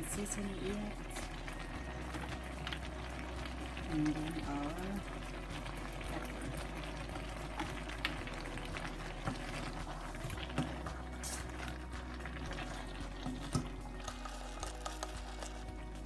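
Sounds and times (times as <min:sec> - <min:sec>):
food simmering in a pan: 0:00.0 - 0:16.0
metal spoon scraping a pan: 0:12.5 - 0:15.7.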